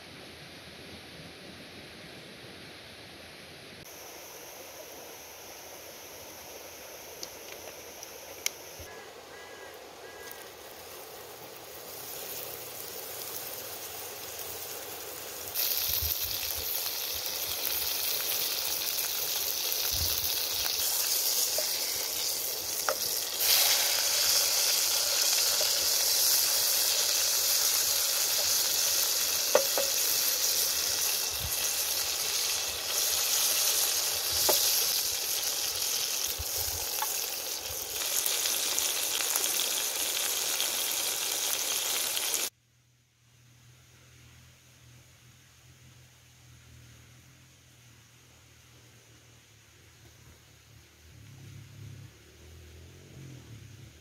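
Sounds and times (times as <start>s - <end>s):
burger patty sizzling in pan: 10.0s - 42.5s
wooden spatula tapping pan: 29.5s - 30.0s.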